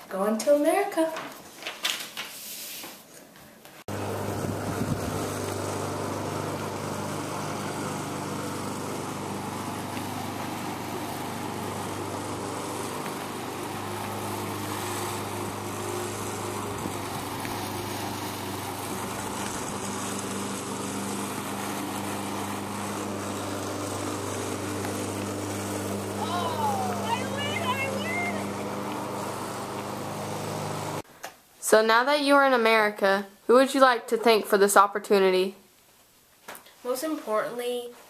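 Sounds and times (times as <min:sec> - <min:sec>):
small engine droning: 0:03.9 - 0:31.0.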